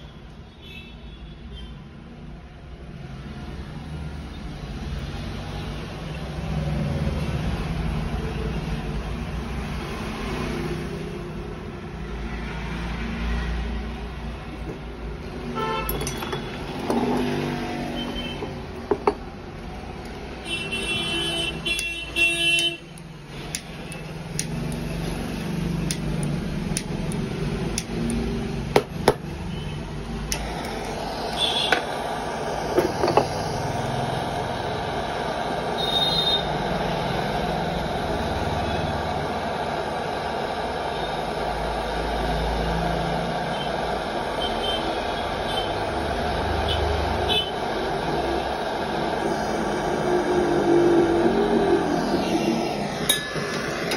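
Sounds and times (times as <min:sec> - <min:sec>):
street traffic rumbling: 0:00.0 - 0:53.9
gas torch hissing: 0:02.9 - 0:53.9
car horn tooting: 0:15.6 - 0:16.5.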